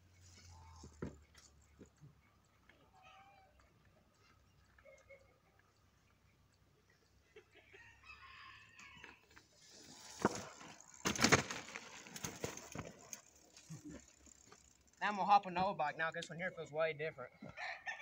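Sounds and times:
bike knocking and rattling: 0:00.1 - 0:03.0, 0:09.0 - 0:15.6
rooster crowing: 0:07.8 - 0:09.2, 0:17.5 - 0:18.0.

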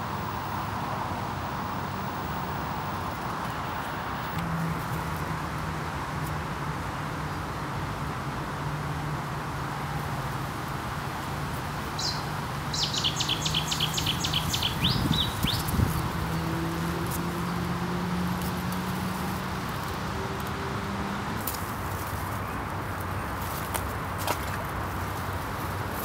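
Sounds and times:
songbird singing: 0:11.8 - 0:21.3.

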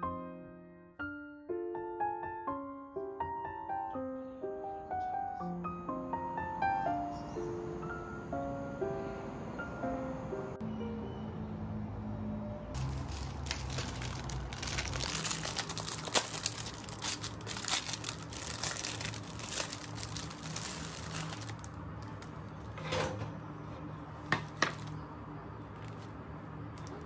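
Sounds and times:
plastic wrap crinkling: 0:12.8 - 0:22.7, 0:24.4 - 0:25.0.

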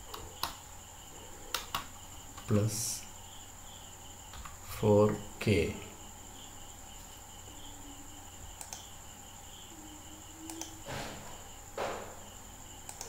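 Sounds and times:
crickets chirping: 0:00.0 - 0:13.0
low electrical hum: 0:00.0 - 0:13.0
mouse clicks: 0:08.6 - 0:08.9, 0:10.5 - 0:10.8.

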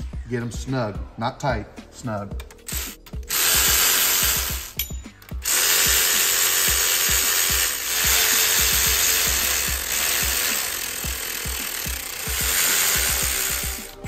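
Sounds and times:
cordless ratchet spinning: 0:02.4 - 0:14.0.

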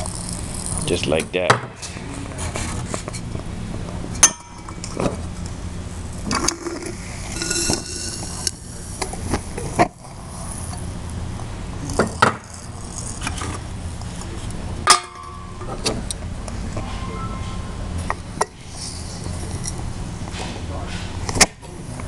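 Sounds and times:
ringing metal clang: 0:04.2 - 0:05.2, 0:07.3 - 0:08.6, 0:14.8 - 0:15.8, 0:16.8 - 0:18.1
metal tool scraping a crucible: 0:06.2 - 0:09.6.

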